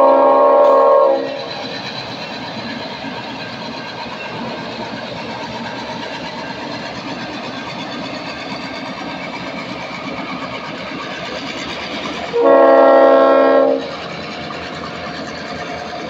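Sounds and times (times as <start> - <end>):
locomotive air horn blast: 0.0 - 1.4, 12.3 - 13.9
train wheels on rails: 0.0 - 16.0.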